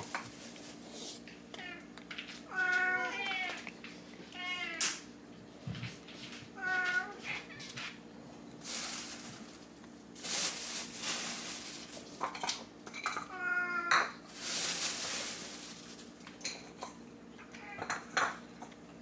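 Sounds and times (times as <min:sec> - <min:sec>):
cat meowing: 0:02.5 - 0:03.6, 0:04.3 - 0:04.8.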